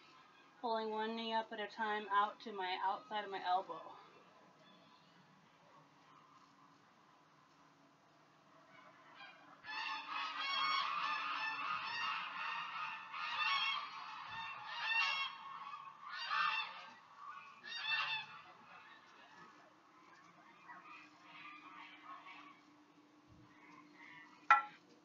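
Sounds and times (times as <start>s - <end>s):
birds honking: 9.2s - 19.4s.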